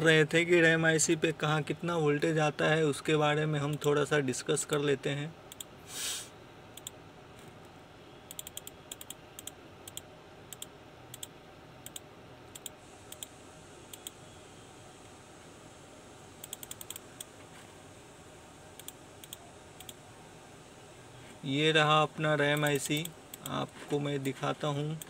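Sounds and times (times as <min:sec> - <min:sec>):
computer mouse clicks: 0:06.8 - 0:07.5, 0:08.3 - 0:13.3, 0:13.9 - 0:14.2, 0:16.4 - 0:17.3, 0:18.8 - 0:20.0, 0:22.5 - 0:23.6.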